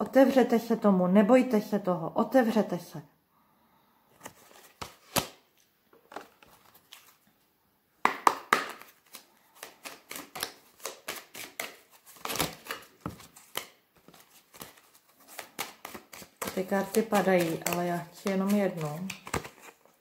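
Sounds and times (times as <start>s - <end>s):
cards being shuffled: 4.2s - 7.2s, 8.0s - 20.0s.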